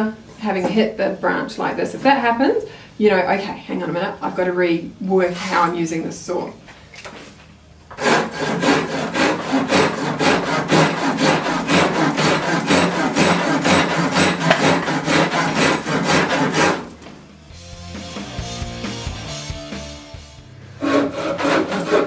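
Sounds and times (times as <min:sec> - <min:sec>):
pull saw cutting branch: 0:08.0 - 0:16.9.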